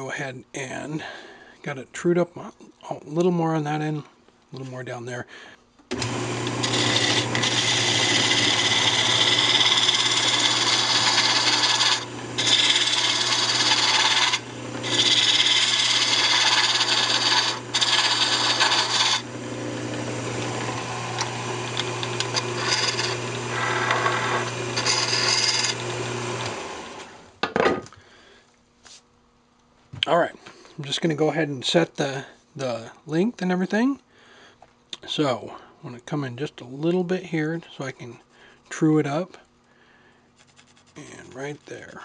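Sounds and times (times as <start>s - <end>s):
lathe tool scraping wood: 5.9s - 27.2s
lathe motor hum: 5.9s - 27.3s.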